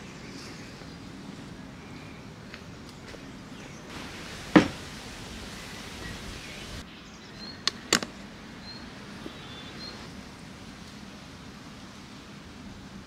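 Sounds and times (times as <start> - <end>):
faint bird chirps: 8.6 - 10.1.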